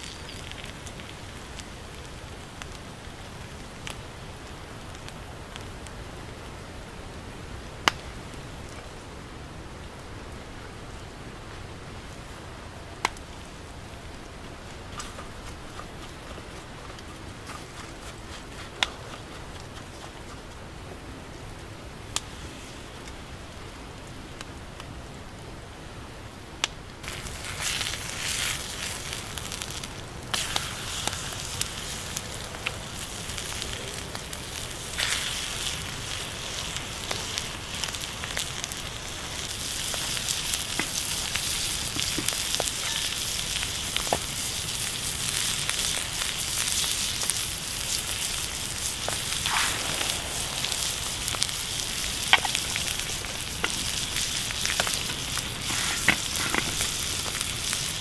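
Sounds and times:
meat sizzling with pops: 0.0 - 6.0, 27.0 - 58.0
wood fire crackling: 0.0 - 58.0.

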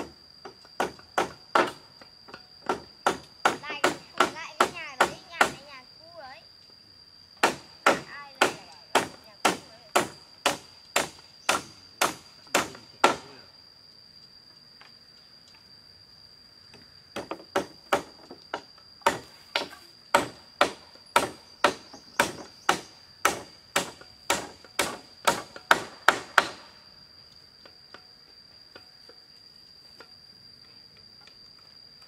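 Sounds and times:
high insect drone: 0.0 - 32.0
hammer nailing wood: 0.8 - 1.8, 7.4 - 13.3, 19.0 - 26.6.

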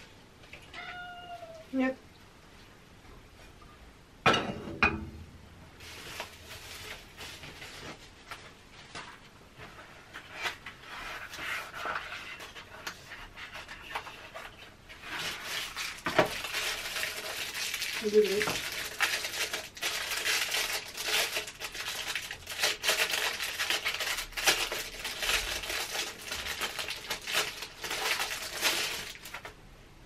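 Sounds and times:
pan clanking on metal grate: 4.2 - 5.2
bubble wrap and cardboard rustling: 5.8 - 29.6.

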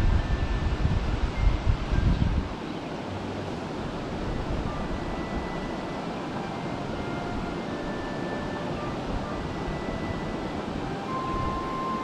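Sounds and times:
river water rushing: 0.0 - 12.0
wind on microphone: 0.0 - 12.0
faint high held notes: 3.1 - 12.0.

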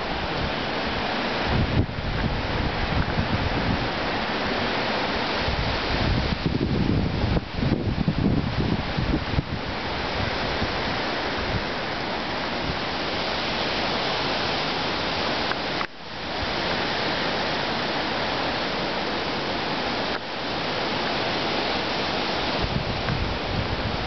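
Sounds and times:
wind and rain rushing hiss: 0.0 - 24.0.

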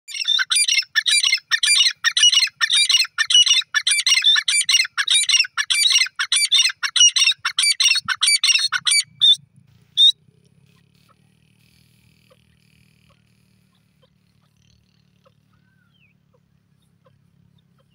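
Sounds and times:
bird shrill repeated calls: 0.1 - 9.4, 10.0 - 10.2.

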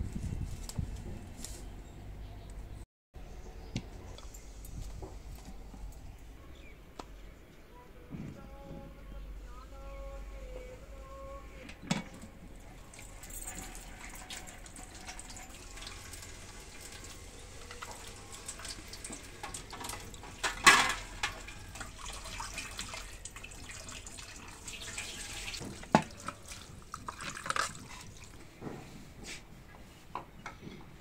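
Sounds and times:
vegetables rinsed by hand: 12.7 - 28.5
tap water running into sink: 12.9 - 27.8.

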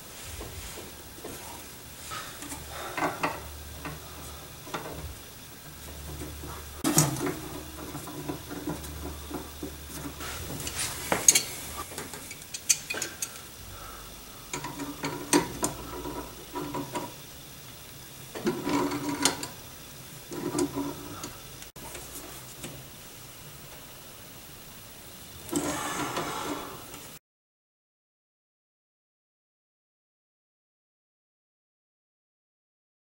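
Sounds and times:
metal clicks and scrapes: 1.2 - 13.5, 14.5 - 17.2, 18.3 - 19.6, 20.2 - 22.1.

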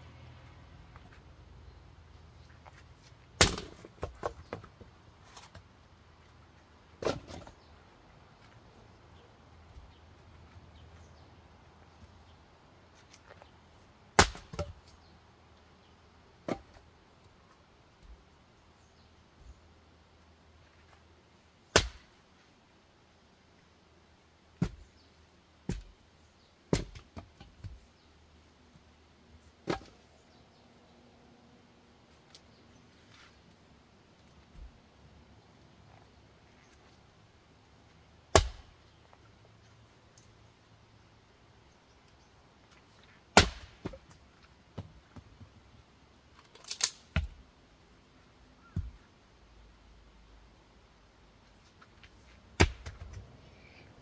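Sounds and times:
axe splitting firewood: 3.4 - 4.8, 7.0 - 7.6, 14.2 - 14.9, 16.4 - 16.9, 21.7 - 22.2, 24.6 - 24.9, 25.6 - 26.0, 26.7 - 27.8, 29.4 - 30.0, 38.3 - 38.8, 43.0 - 44.2, 46.4 - 47.4, 52.0 - 53.2.

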